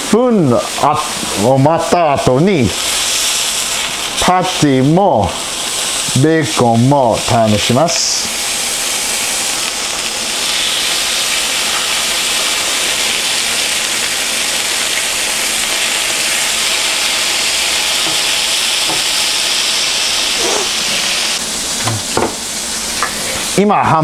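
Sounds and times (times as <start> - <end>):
meat sizzling on a griddle: 0.0 - 24.0.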